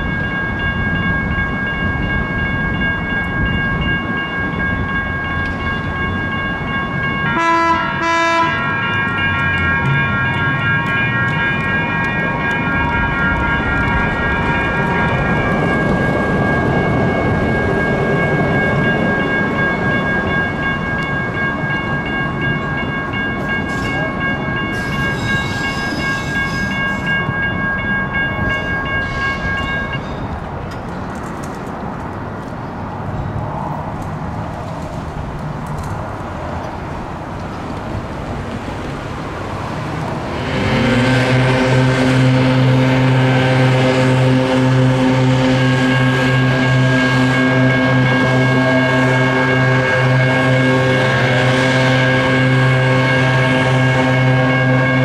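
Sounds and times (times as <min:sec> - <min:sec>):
train rumble: 0:00.0 - 0:55.0
train whine: 0:00.0 - 0:55.0
loud low train horn: 0:07.2 - 0:08.9, 0:40.3 - 0:55.0.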